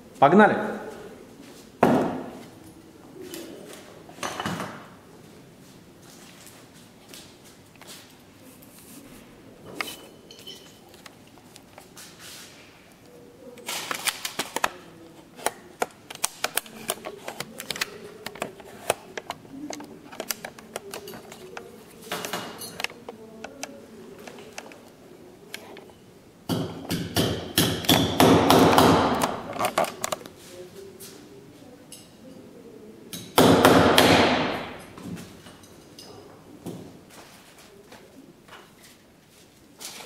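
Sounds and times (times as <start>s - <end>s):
background voices: 8.4s - 26.0s.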